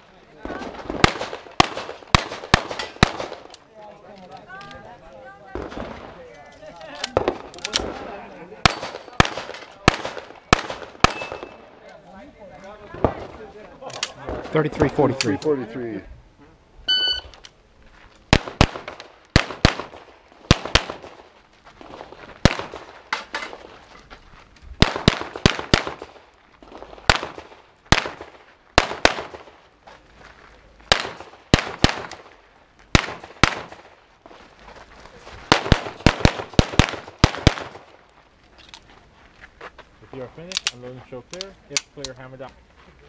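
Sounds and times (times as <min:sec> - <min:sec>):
handgun shots: 0:08.7 - 0:11.6
shot timer beep: 0:16.9 - 0:17.4.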